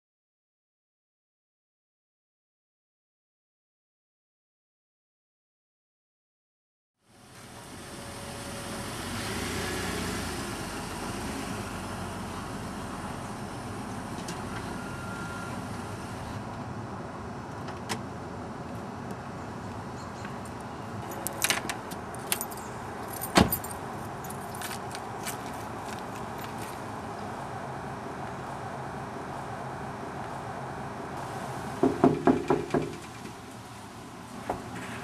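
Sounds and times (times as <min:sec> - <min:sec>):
traffic hum: 0:07.1 - 0:35.0
keys jingling: 0:21.0 - 0:25.5.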